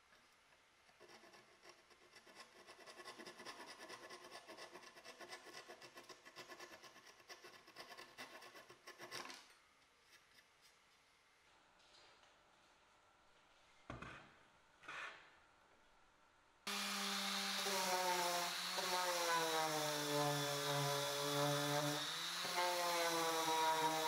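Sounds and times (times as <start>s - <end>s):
handsaw sawing wood: 1.0s - 9.3s, 16.7s - 24.0s.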